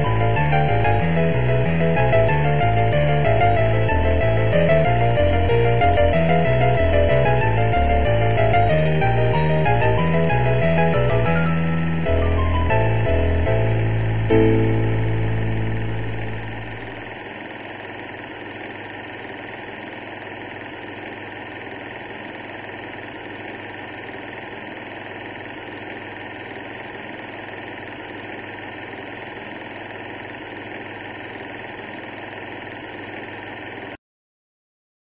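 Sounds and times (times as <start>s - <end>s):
steady mechanical running noise: 0.0s - 34.0s.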